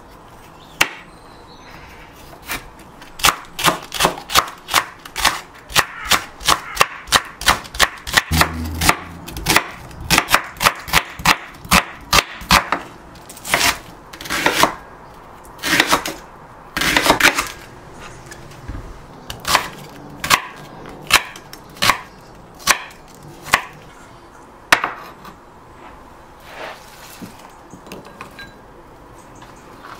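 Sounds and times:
knife chopping on wooden board: 0:03.2 - 0:12.9.

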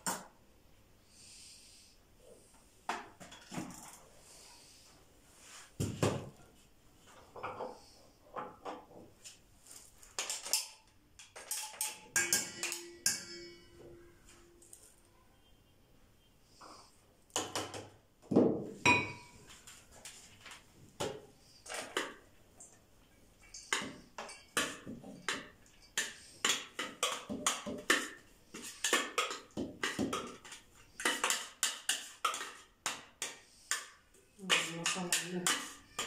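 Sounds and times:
spoon clattering on metal bowl: 0:10.2 - 0:14.0, 0:23.4 - 0:36.0.

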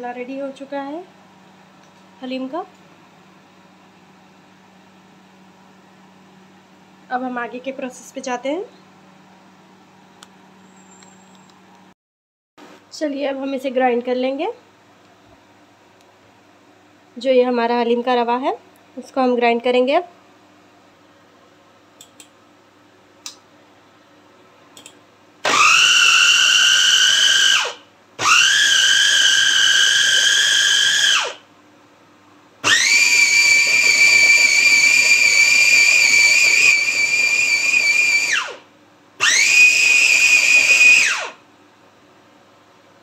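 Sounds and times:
food chopper motor whine: 0:25.4 - 0:31.5, 0:32.6 - 0:41.4.

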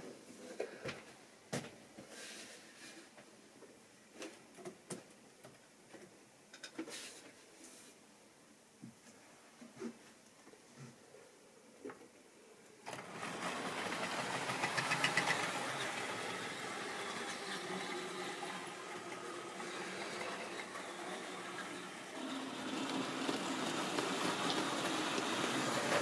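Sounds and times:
clicks of train wheels: 0:12.9 - 0:26.0
model train motor whirring: 0:12.9 - 0:26.0
wheels running on track: 0:12.9 - 0:26.0.

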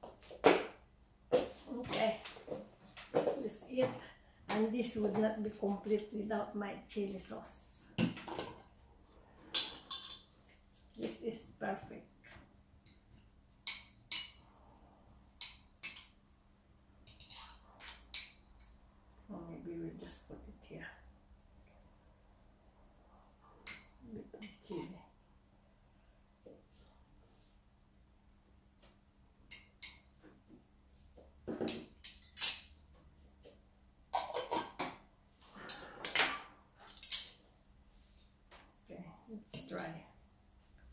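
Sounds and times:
spoon clinking against glass jar: 0:17.1 - 0:18.8, 0:23.7 - 0:24.0, 0:29.5 - 0:30.1, 0:31.7 - 0:32.8.

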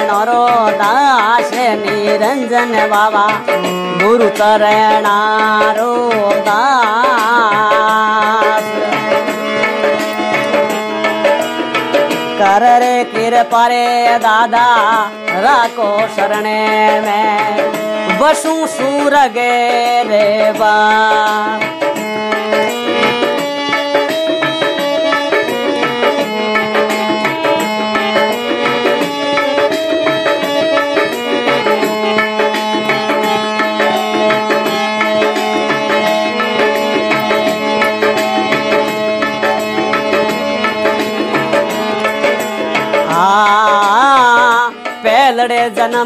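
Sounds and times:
person singing: 0:00.0 - 0:10.6, 0:12.4 - 0:22.0, 0:42.9 - 0:46.0
hand drum rhythm: 0:00.0 - 0:46.0
melody of held notes: 0:07.9 - 0:12.4, 0:21.0 - 0:45.2.

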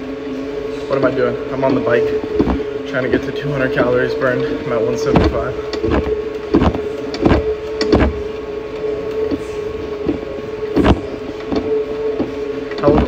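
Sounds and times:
exercise bike flywheel whine: 0:00.0 - 0:13.0
short knocks: 0:05.1 - 0:08.2.

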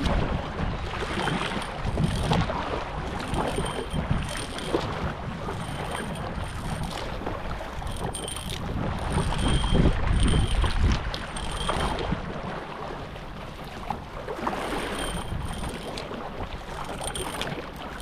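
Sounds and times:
paddle strokes: 0:00.0 - 0:18.0
water splashing against boat: 0:00.0 - 0:18.0
wind rumbling on microphone: 0:00.0 - 0:18.0.

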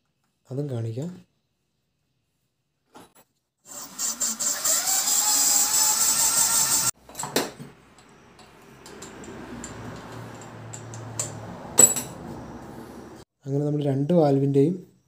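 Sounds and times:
electric drill grinding: 0:03.7 - 0:07.0.

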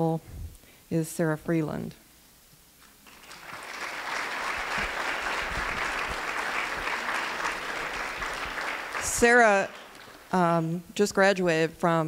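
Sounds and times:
audience applauding: 0:03.0 - 0:10.4.

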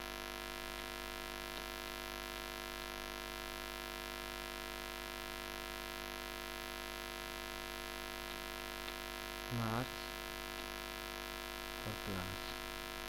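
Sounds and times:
electrical mains hum: 0:00.0 - 0:13.0
recording hiss: 0:09.4 - 0:10.2, 0:11.8 - 0:12.7.

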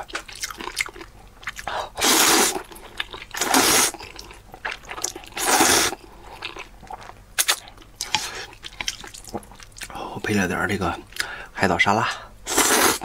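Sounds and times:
wet chewing: 0:00.0 - 0:10.0
person slurping noodles: 0:01.5 - 0:02.7, 0:03.4 - 0:04.2, 0:05.3 - 0:06.0, 0:12.5 - 0:13.0.

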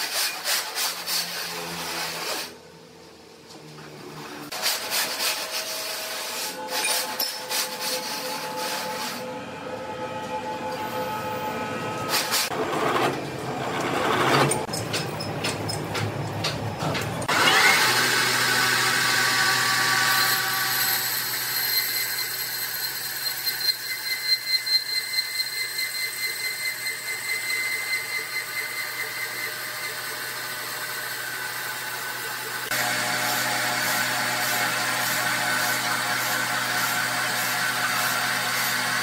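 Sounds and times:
sawmill machinery whining: 0:17.3 - 0:39.0.

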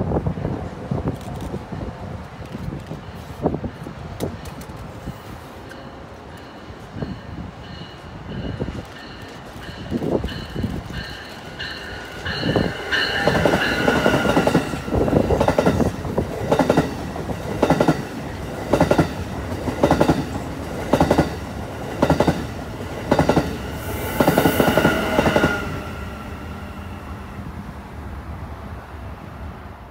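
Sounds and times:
train whine: 0:00.0 - 0:29.9
train wheels clacking over rail joints: 0:07.7 - 0:23.6.

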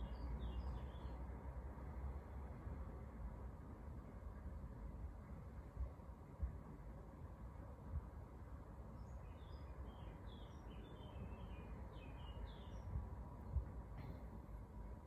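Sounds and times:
faint birds chirping: 0:00.0 - 0:02.4, 0:08.1 - 0:15.0
low room rumble: 0:00.0 - 0:15.0.

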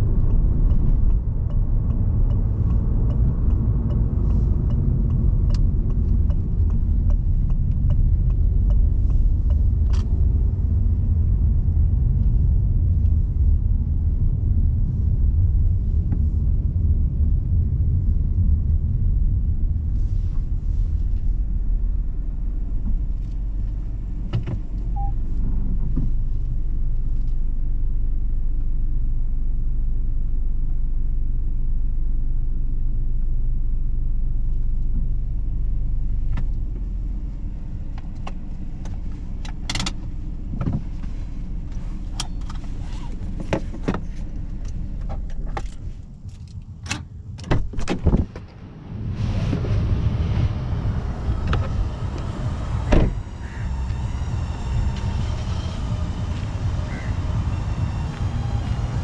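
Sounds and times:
car engine and tyres rumbling: 0:00.0 - 0:59.0
clicks and knocks in cabin: 0:46.4 - 0:48.5.

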